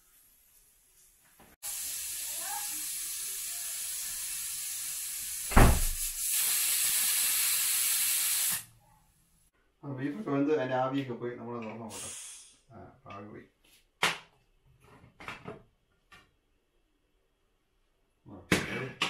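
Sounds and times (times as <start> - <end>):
pressure cooker steam hiss: 0.0 - 8.7.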